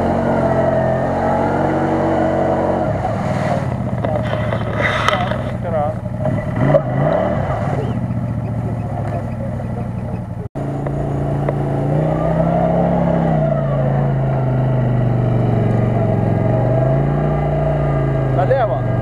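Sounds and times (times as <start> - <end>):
off-road vehicle engine revving: 0.0 - 19.0.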